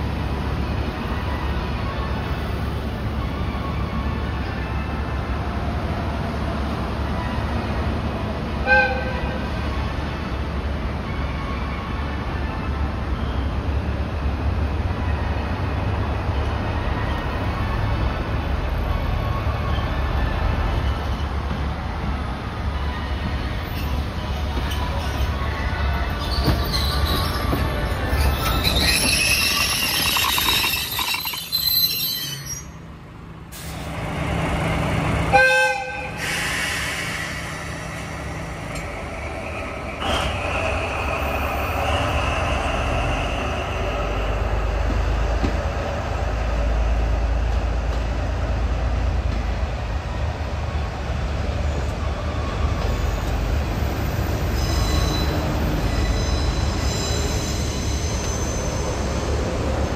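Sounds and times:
train horn: 8.6s - 9.5s, 35.3s - 36.2s
train wheels squealing: 18.6s - 21.6s, 22.6s - 32.9s, 36.1s - 45.6s, 51.7s - 59.9s.

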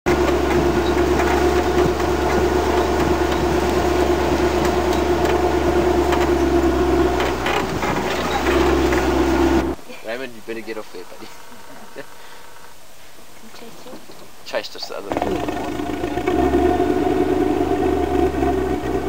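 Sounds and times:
vehicle engine droning: 0.1s - 9.8s, 15.1s - 19.0s.

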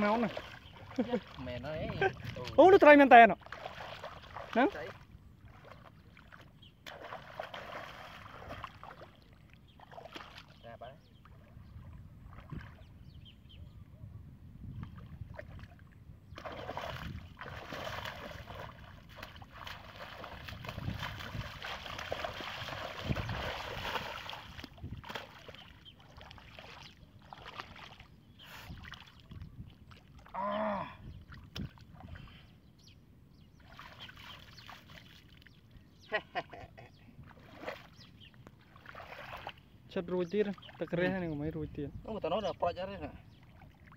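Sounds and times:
hands splashing in water: 16.4s - 28.1s.

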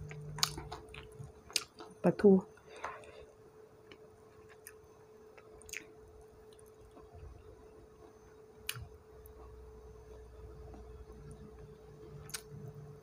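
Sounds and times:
soft chewing: 0.0s - 2.0s, 2.6s - 9.6s
faint steady hum: 0.0s - 13.0s.

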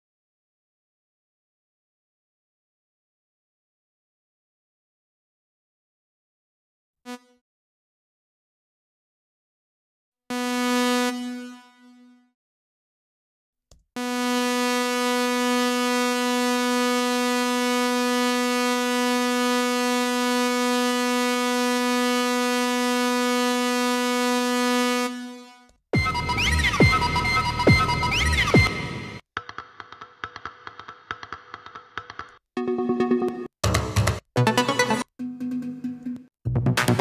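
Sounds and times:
synthesizer whistling pitch glides: 26.0s - 29.2s.

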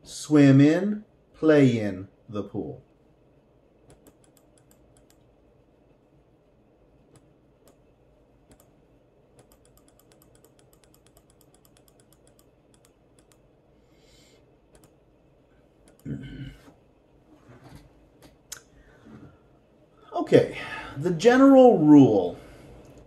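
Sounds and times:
faint computer mouse clicks: 3.9s - 5.3s, 8.5s - 8.7s, 9.4s - 13.4s, 14.7s - 15.0s.

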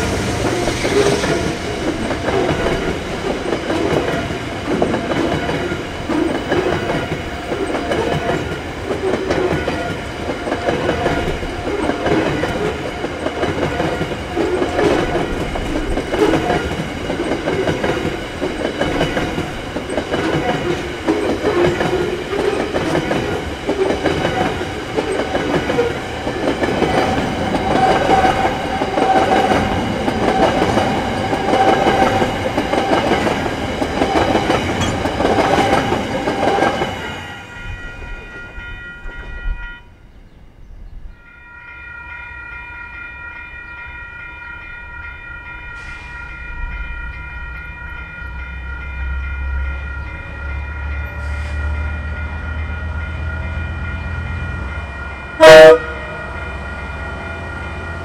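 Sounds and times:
steel wheels rumbling on rails: 0.0s - 39.7s.

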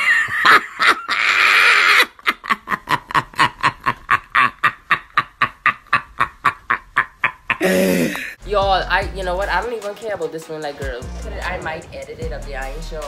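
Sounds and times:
person wheezing laughter: 0.0s - 8.4s.

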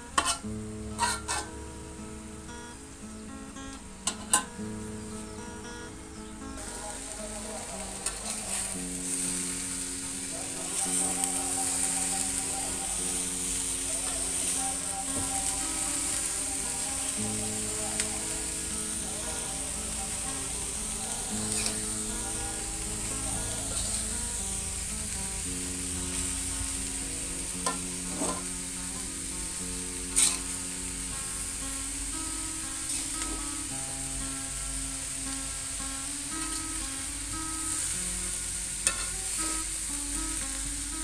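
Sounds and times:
food sizzling in a wok: 0.0s - 41.0s
metal spatula scraping a pan: 0.2s - 1.5s, 7.7s - 9.9s, 23.7s - 24.1s, 27.6s - 28.6s, 30.1s - 30.6s, 38.8s - 39.2s.

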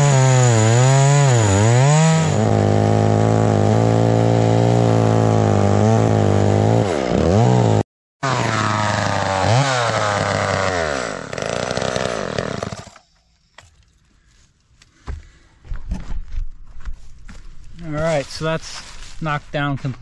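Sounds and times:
chainsaw cutting at high revs: 0.0s - 13.0s.

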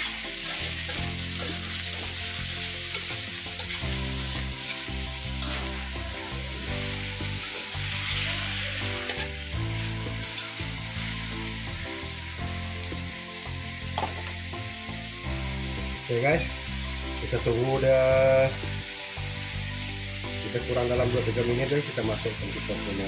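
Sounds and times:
spatula scraping a wok: 0.0s - 11.8s
frogs sizzling in hot oil: 0.0s - 23.0s.

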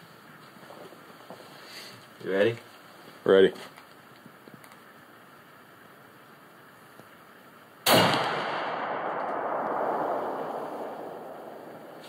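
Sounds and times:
rifle shot with echo: 7.8s - 12.0s.

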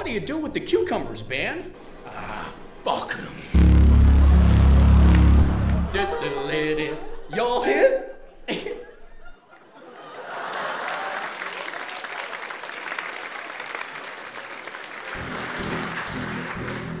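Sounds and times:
audience applauding: 10.1s - 17.0s.

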